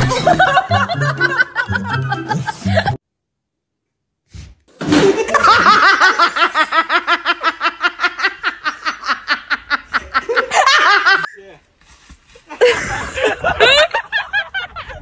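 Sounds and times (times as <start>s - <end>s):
person laughing hard: 0.0s - 3.0s, 4.9s - 11.3s, 12.5s - 15.0s.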